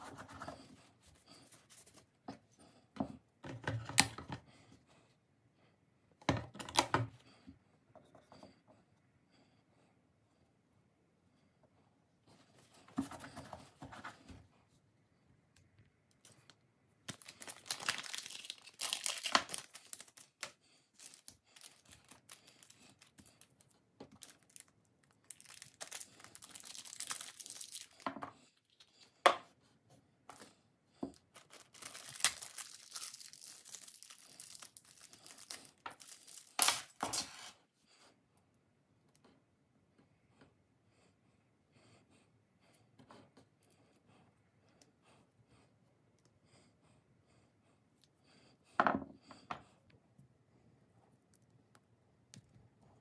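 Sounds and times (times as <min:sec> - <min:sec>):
plastic bags crinkling: 0:17.1 - 0:28.2, 0:31.3 - 0:37.4.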